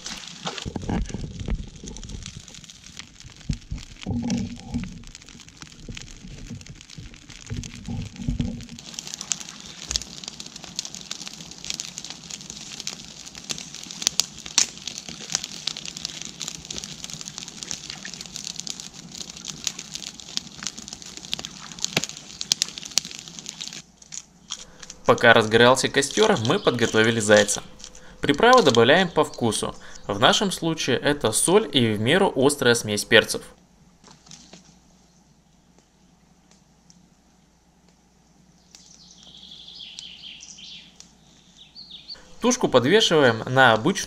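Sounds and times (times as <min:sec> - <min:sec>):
campfire crackling and popping: 0:00.0 - 0:44.0.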